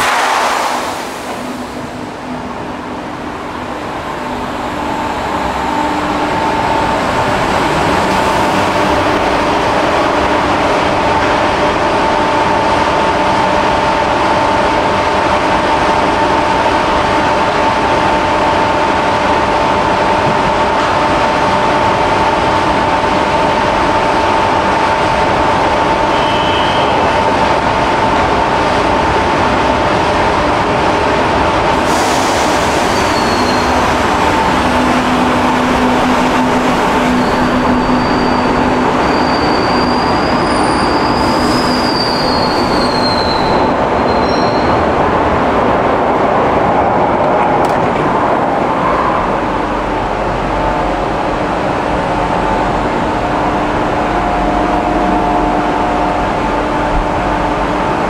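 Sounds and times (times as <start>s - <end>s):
train rumbling: 0.0s - 58.0s
train wheels squealing: 32.4s - 33.8s, 37.0s - 44.8s.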